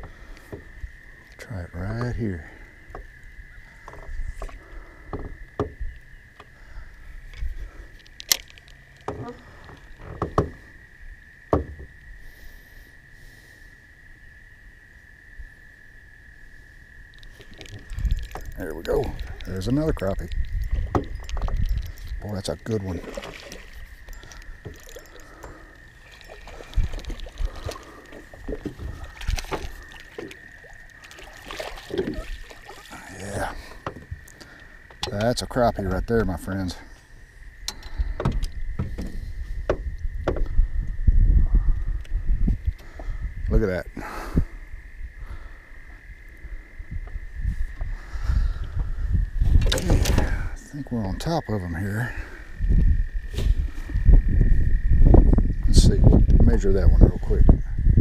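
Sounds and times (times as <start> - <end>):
water splashing: 17.1 - 34.9
fishing rod and reel knocking: 17.2 - 32.8.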